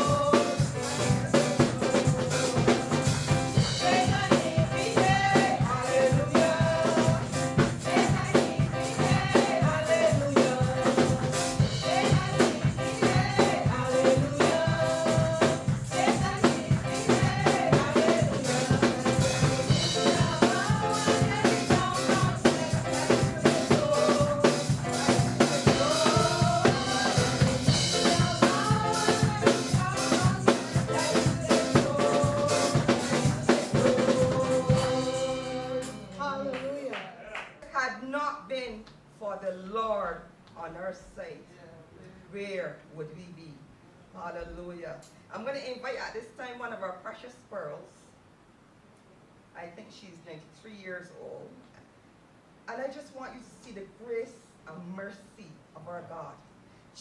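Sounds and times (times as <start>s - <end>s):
person singing melody: 0.0s - 3.2s, 3.8s - 37.3s
drum kit and percussion beat: 0.0s - 37.3s.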